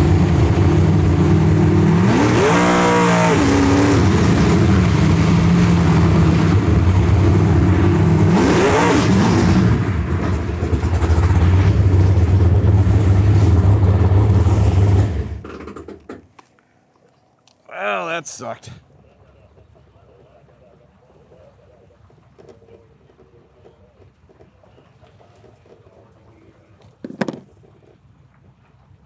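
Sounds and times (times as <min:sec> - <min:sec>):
drag boat engine at high revs: 0:00.0 - 0:15.5.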